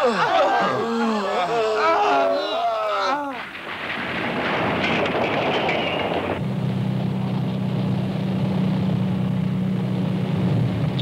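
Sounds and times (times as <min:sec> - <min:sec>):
tyres on gravel: 0:03.4 - 0:06.4
car engine drone inside cabin: 0:06.4 - 0:11.0.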